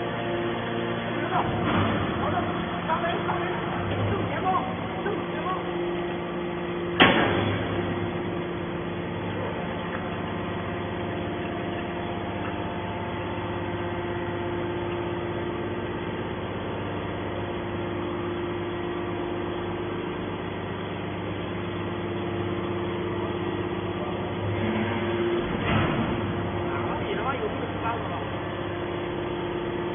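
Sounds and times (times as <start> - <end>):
hydraulic pump humming: 0.0 - 29.9
short clunk: 7.0 - 7.7.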